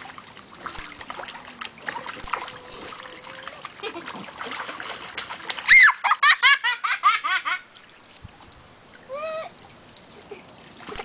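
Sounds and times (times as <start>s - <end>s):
child vocal sound: 2.5s - 3.6s, 9.1s - 9.6s
child laughing: 5.7s - 7.7s, 10.1s - 10.6s.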